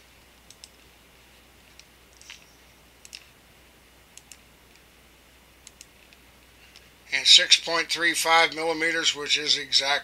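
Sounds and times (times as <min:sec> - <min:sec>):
computer mouse clicking: 0:00.4 - 0:00.8, 0:01.7 - 0:03.4, 0:04.1 - 0:04.9, 0:05.6 - 0:06.9.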